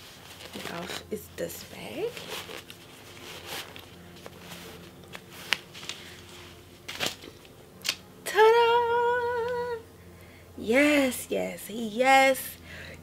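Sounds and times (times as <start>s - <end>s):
cloth bag rustling: 0.0s - 7.5s.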